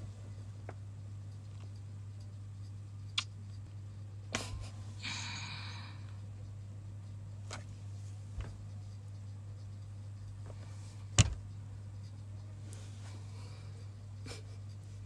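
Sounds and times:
steady low hum: 0.0 - 15.0
breathy sigh: 5.0 - 6.1.

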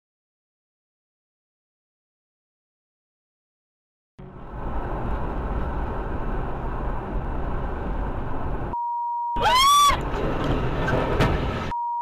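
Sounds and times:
car road and engine noise: 4.2 - 11.7
censor bleep tone: 8.8 - 9.4, 11.7 - 12.0
rising and falling squeal: 9.4 - 11.2.

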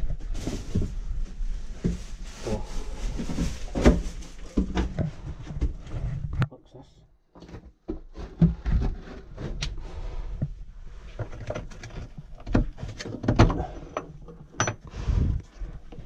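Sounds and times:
wood dragging and scraping: 7.4 - 14.2.

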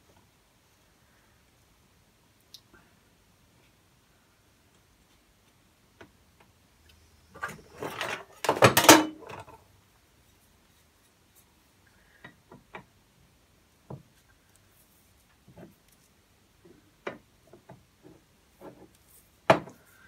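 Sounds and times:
rustling and clatter of parts: 7.4 - 9.6.

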